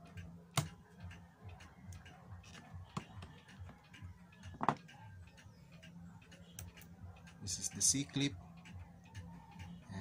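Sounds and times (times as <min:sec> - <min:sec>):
pendulum clocks ticking: 0:00.0 - 0:10.0.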